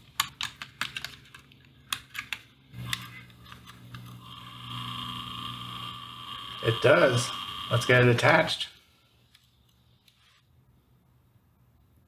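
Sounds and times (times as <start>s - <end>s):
high steady whine: 2.7s - 9.2s
small motor humming: 2.8s - 8.3s.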